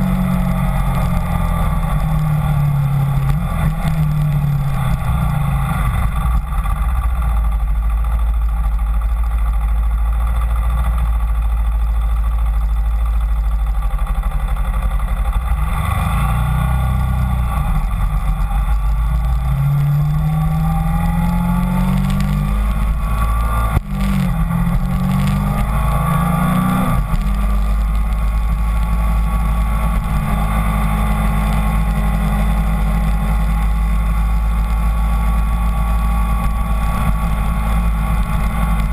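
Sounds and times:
motorcycle engine accelerating: 0.0 - 38.9
wind rumble on microphone: 15.6 - 38.9.

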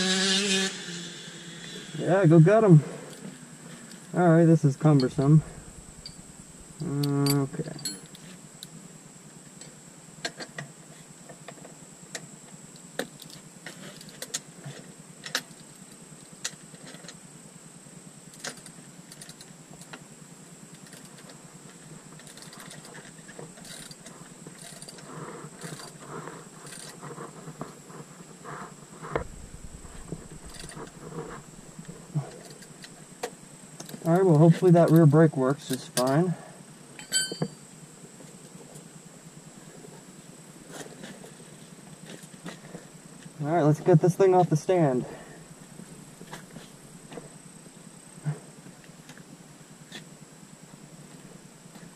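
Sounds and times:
wrench and metal parts clinking: 7.2 - 8.2, 37.0 - 37.6.

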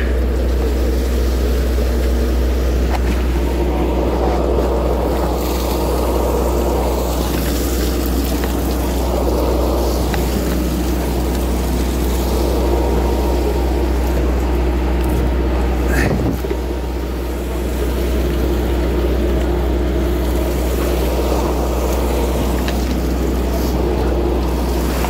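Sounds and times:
boat engine droning: 0.0 - 25.0
seawater splashing: 0.0 - 25.0.

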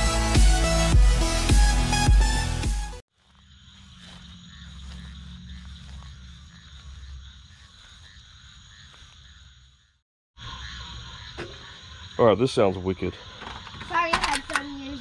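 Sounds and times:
frogs trilling: 3.2 - 15.0.

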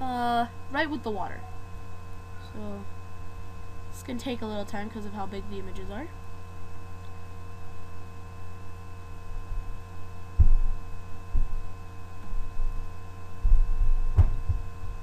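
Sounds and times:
low electrical hum: 0.0 - 15.0
dull low thumps: 10.3 - 15.0.

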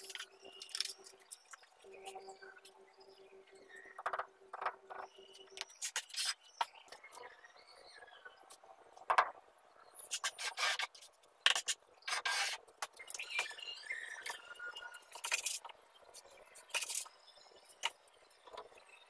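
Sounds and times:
trowel scraping mortar on block: 10.1 - 12.6.

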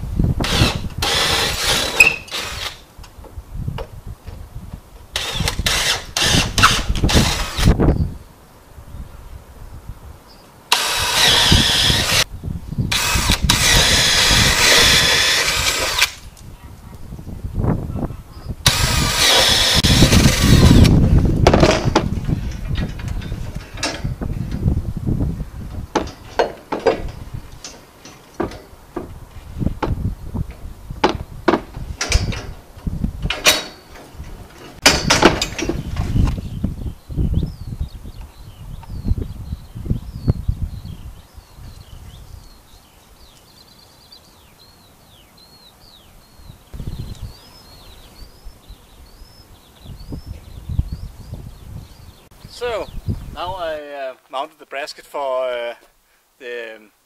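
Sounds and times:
small birds chirping: 7.2 - 10.7, 16.3 - 21.2, 35.6 - 53.7
low rumbles: 10.9 - 42.6.

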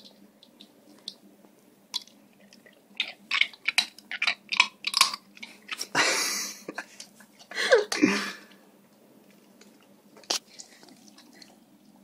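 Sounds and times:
dog crunching nut shells: 1.9 - 6.0.

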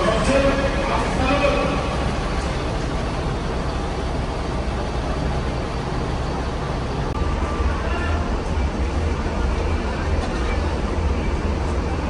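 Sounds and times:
idling diesel bus engines: 0.0 - 12.0
traffic: 0.0 - 12.0.

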